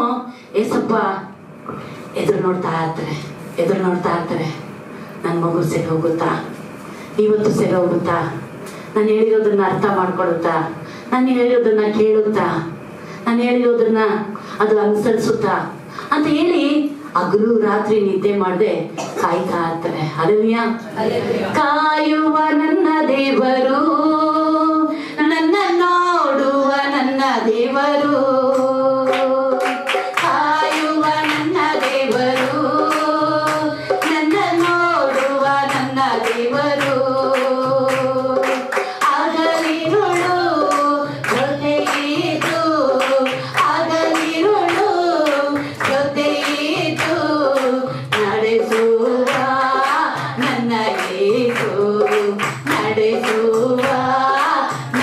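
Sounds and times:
person singing worship song: 26.3s - 55.0s
music with steady beat: 28.0s - 55.0s
hand-clapping: 29.1s - 55.0s.

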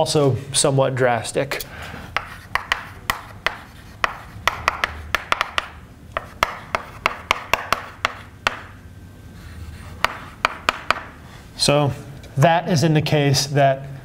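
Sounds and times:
chalk scratching strokes: 2.2s - 5.5s, 6.2s - 8.3s, 9.3s - 11.1s
chalk tapping on chalkboard: 2.2s - 8.8s, 10.0s - 11.2s.

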